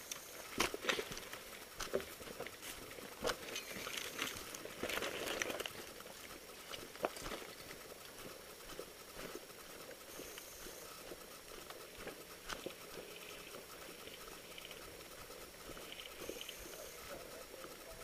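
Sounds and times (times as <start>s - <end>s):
footsteps: 0.5s - 14.4s.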